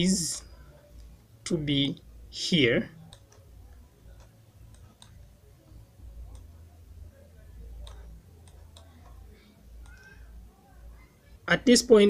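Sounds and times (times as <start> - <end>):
steady low hum: 0.0 - 11.8
computer mouse clicks: 3.1 - 3.5, 4.1 - 5.2, 7.8 - 9.2.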